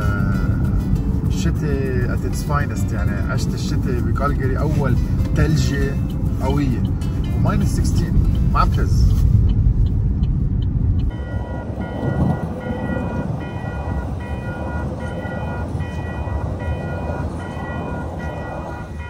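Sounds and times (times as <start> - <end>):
faint background music: 0.0 - 9.3
vehicle road noise rumbling: 0.0 - 19.0.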